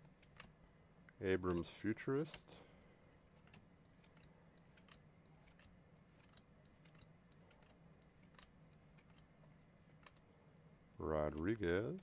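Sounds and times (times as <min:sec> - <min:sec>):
low steady hum: 0:00.0 - 0:12.0
cards sliding off a stack: 0:03.3 - 0:10.2.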